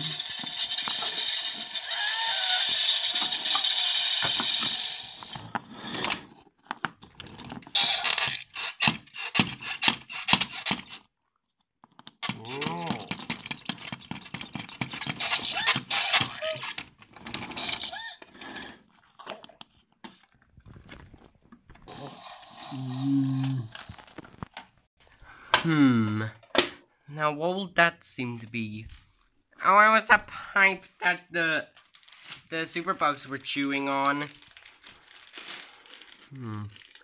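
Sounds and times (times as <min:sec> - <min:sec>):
toy figures clicking on wooden floor: 0:11.9 - 0:17.0.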